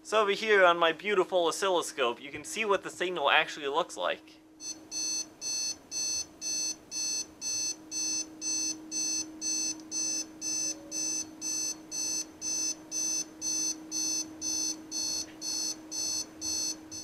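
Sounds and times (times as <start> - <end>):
alarm clock beeping: 4.6 - 17.0.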